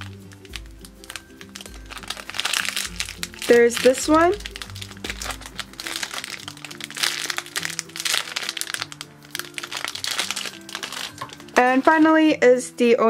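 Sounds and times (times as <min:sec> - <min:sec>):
plastic packaging crinkling: 0:00.0 - 0:12.2
background music with held notes: 0:00.0 - 0:13.0.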